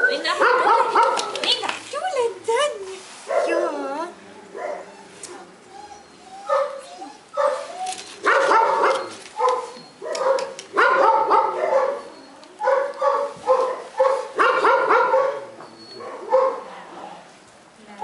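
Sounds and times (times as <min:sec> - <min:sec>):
dogs yelping and barking: 0:04.4 - 0:16.7.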